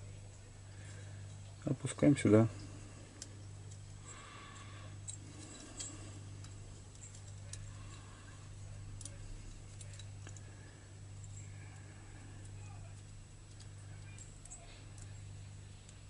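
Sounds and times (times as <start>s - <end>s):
steady low hum: 0.0s - 16.0s
faint small metal clicks: 11.2s - 15.2s.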